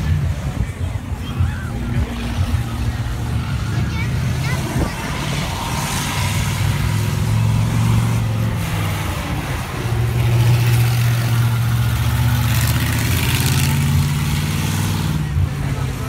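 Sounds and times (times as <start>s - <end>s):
monster truck engine rumbling: 0.0s - 16.0s.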